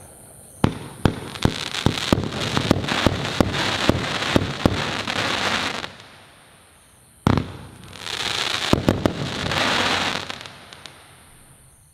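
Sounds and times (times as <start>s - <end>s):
loud firework pops: 0.0s - 6.1s, 7.2s - 11.1s
fireworks crackling: 0.0s - 11.8s.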